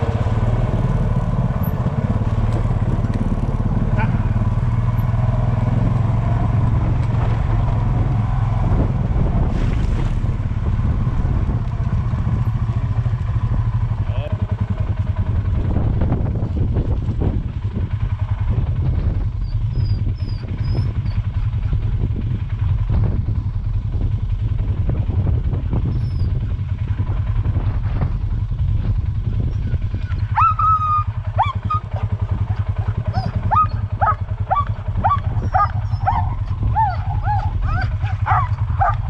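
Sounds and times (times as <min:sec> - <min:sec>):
small engine idling: 0:00.0 - 0:09.4, 0:10.2 - 0:39.0
sled dogs whining and yipping: 0:19.2 - 0:22.0, 0:29.4 - 0:39.0.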